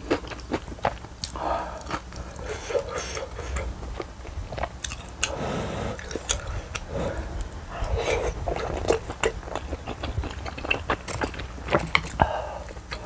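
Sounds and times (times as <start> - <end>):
person chewing wetly: 0.0 - 13.0.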